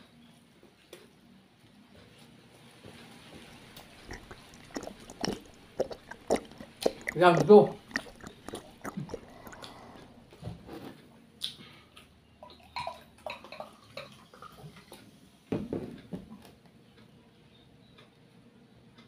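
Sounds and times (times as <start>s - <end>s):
cola pouring into mug: 3.3s - 10.3s.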